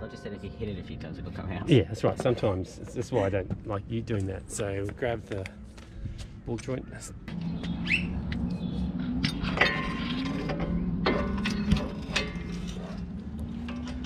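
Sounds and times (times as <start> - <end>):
low steady hum: 0.0 - 14.0
metal tools clinking: 9.2 - 14.0.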